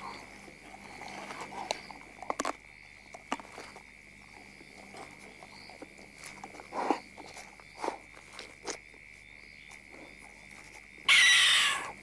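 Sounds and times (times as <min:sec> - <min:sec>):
night insects chirring: 0:00.0 - 0:12.0
animal crunching bones: 0:00.6 - 0:08.9.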